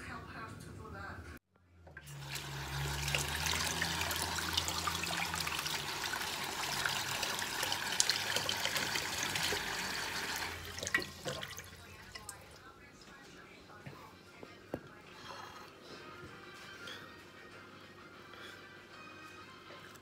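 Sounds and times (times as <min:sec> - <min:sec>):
water splashing over pot: 0:02.0 - 0:12.6.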